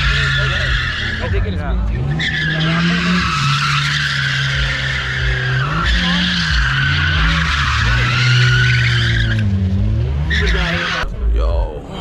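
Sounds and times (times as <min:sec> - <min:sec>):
tyres squealing: 0:00.0 - 0:11.0
car engine revving: 0:00.0 - 0:12.0.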